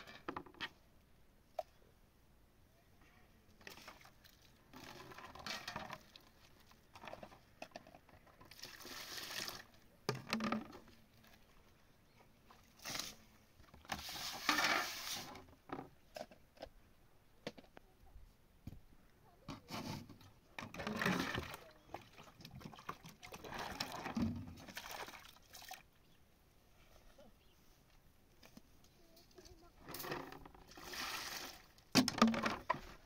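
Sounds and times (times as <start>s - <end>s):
water splashing in basins: 8.2s - 11.7s, 20.6s - 26.0s, 29.9s - 33.0s.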